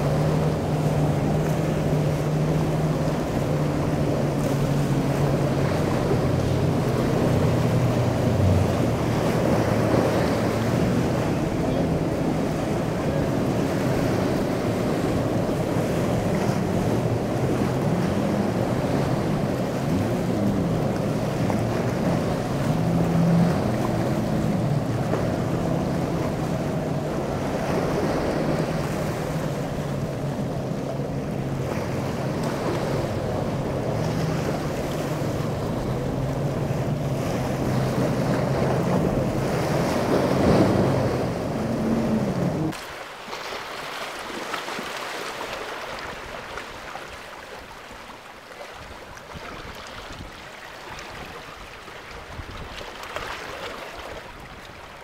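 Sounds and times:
boat engines running: 0:00.0 - 0:55.0
waves breaking: 0:00.0 - 0:55.0
wind buffeting microphone: 0:52.2 - 0:52.9.

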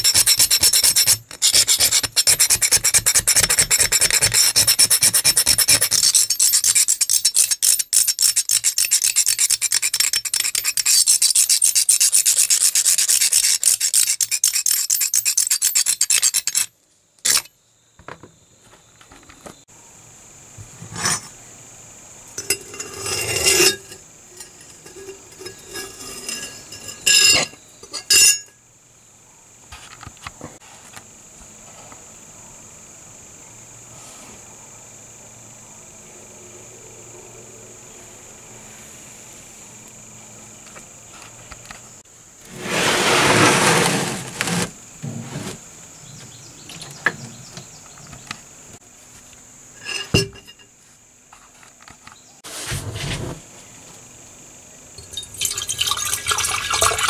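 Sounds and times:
brush scrubbing metal blade: 0:00.0 - 0:16.7, 0:22.4 - 0:28.5.

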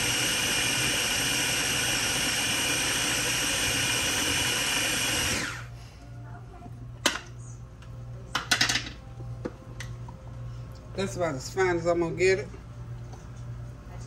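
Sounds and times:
blender running: 0:00.0 - 0:05.7.

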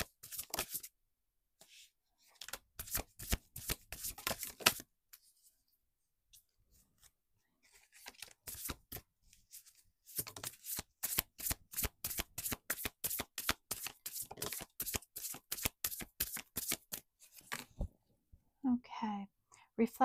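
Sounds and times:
cards being shuffled: 0:00.2 - 0:00.9, 0:02.4 - 0:04.8, 0:07.7 - 0:17.8.

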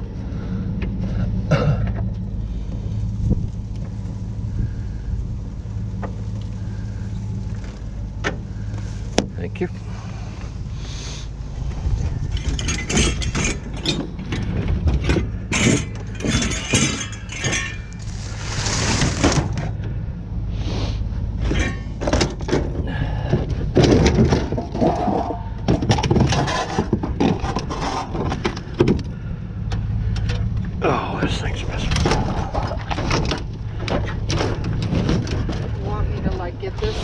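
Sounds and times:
steady low rumble: 0:00.0 - 0:37.0
metal scrap knocking and scraping: 0:12.0 - 0:19.8, 0:21.4 - 0:29.0.

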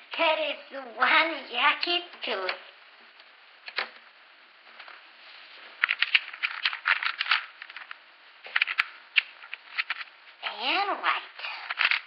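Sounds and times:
plastic toy parts clicking: 0:08.5 - 0:10.1, 0:11.6 - 0:12.0.

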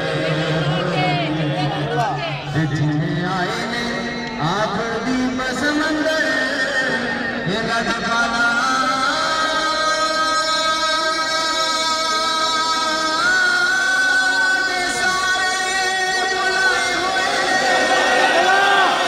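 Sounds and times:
crowd murmur: 0:00.0 - 0:05.7, 0:11.3 - 0:19.0.

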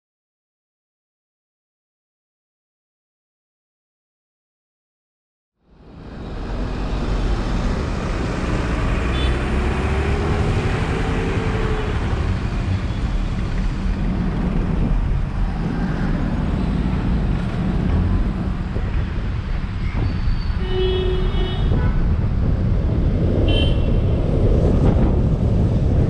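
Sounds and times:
car engine and tyre rumble: 0:05.6 - 0:26.0
surrounding traffic: 0:05.6 - 0:26.0.

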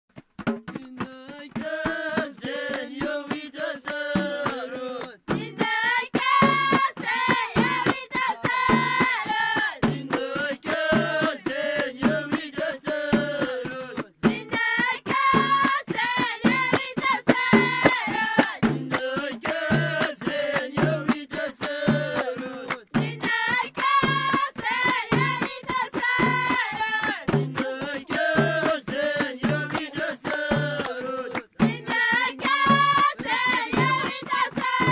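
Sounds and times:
percussion beat: 0:00.1 - 0:34.9
children singing in unison: 0:05.4 - 0:13.3, 0:14.4 - 0:18.5, 0:23.1 - 0:34.9.

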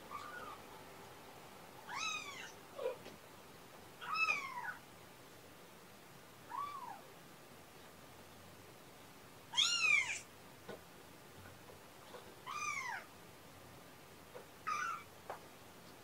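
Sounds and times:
kitten meowing: 0:00.1 - 0:00.6, 0:01.9 - 0:02.6, 0:09.5 - 0:10.2, 0:14.7 - 0:15.1.

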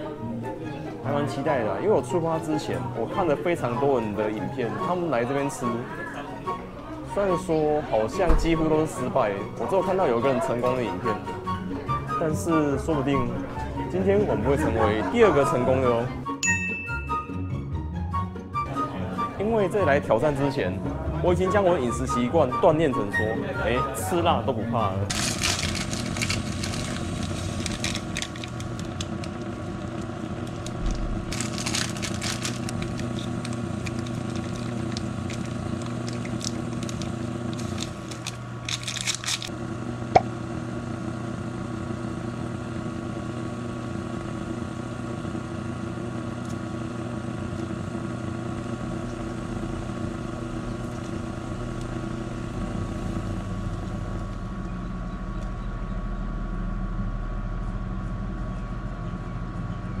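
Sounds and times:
steady machine hum: 0:23.4 - 1:00.0
plastic packaging crinkling: 0:25.1 - 0:39.5.

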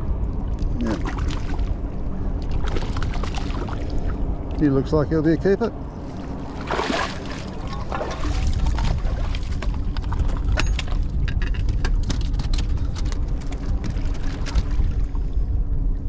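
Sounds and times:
wind buffeting microphone: 0:00.0 - 0:16.0
clicks and knocks on rocks: 0:09.5 - 0:14.8.

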